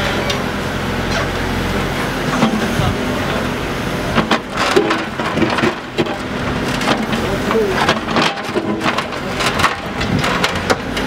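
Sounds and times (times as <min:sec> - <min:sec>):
excavator engine droning: 0:00.0 - 0:11.0
bucket knocking and scraping rock: 0:04.1 - 0:11.0.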